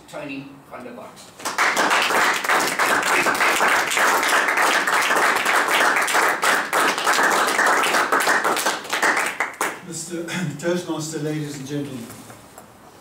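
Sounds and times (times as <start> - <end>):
audience applauding: 1.4 - 9.8.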